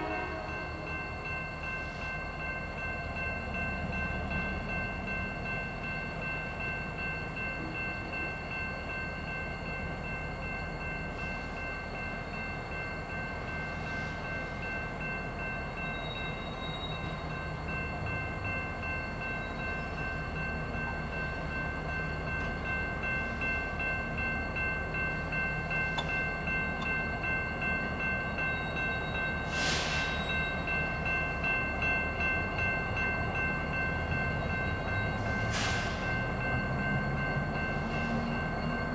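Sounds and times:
locomotive engine and rail rumble: 0.0 - 38.9
short hiss: 29.5 - 30.1.

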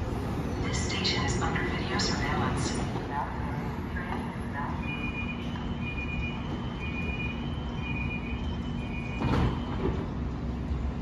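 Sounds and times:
low train hum: 0.0 - 11.0
train door warning beeps: 4.1 - 10.2
train doors closing thump: 9.0 - 10.2.

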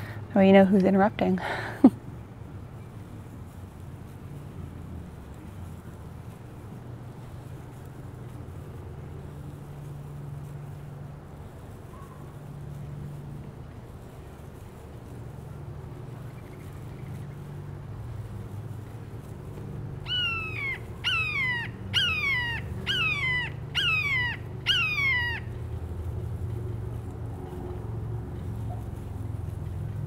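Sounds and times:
steady low hum: 0.0 - 30.0
large bird calling: 20.0 - 25.6.

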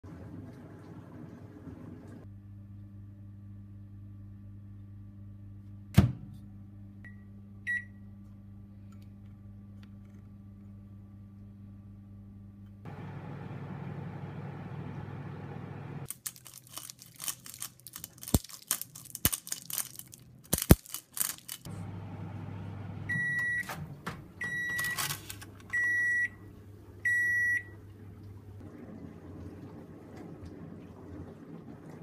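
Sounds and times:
microwave oven humming: 0.0 - 16.2, 21.6 - 32.0
microwave beeps: 7.0 - 8.1, 21.8 - 27.9
paper crinkling and clicking: 16.1 - 21.7, 24.7 - 25.7.

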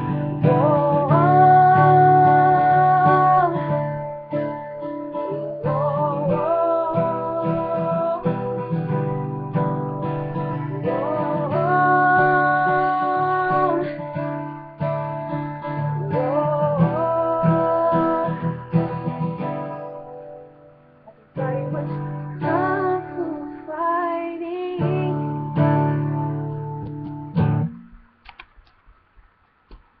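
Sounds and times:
woman singing: 0.0 - 4.5, 5.2 - 9.6, 10.4 - 14.6, 15.6 - 19.7, 21.2 - 26.2
strummed acoustic guitar: 0.0 - 28.2.

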